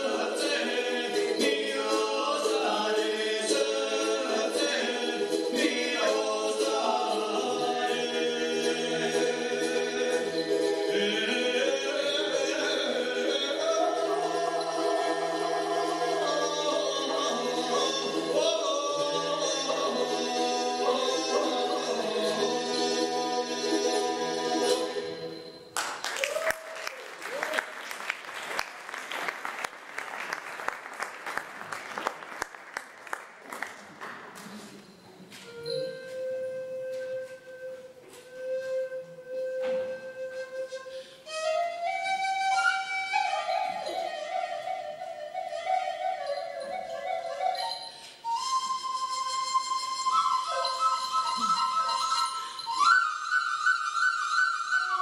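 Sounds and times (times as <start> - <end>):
men singing unaccompanied: 0.0 - 25.1
folk flute melody: 0.0 - 25.7, 35.3 - 55.0
applause: 25.8 - 34.5.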